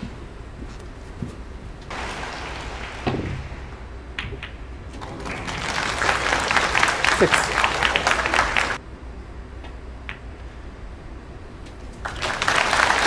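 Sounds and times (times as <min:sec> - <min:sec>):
audience applause: 0:01.9 - 0:03.7, 0:05.0 - 0:08.8, 0:12.0 - 0:13.0
snooker balls clicking: 0:04.2 - 0:05.2.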